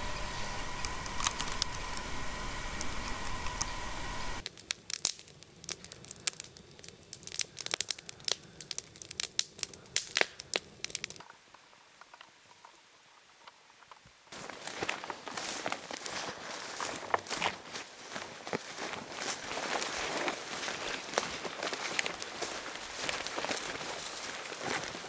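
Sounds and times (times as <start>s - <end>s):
steady hiss: 0.0s - 4.5s
campfire crackling and popping: 0.0s - 12.3s, 14.3s - 25.0s.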